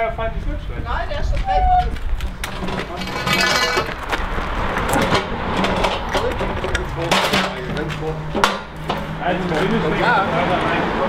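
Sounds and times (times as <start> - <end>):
wood scraping: 1.3 - 10.0.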